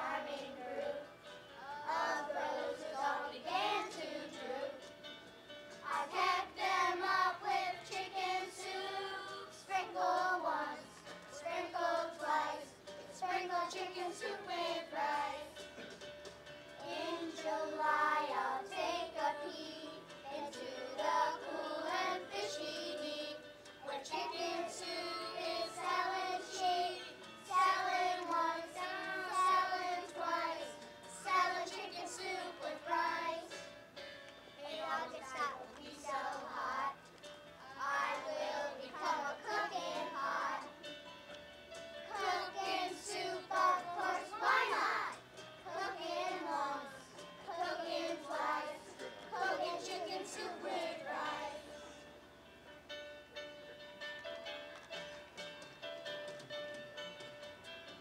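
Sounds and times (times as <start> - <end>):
children singing in unison: 0.0 - 1.0, 1.6 - 4.8, 5.9 - 10.8, 11.4 - 15.5, 16.8 - 33.6, 37.6 - 40.8, 42.1 - 51.7
musical accompaniment: 0.0 - 58.0.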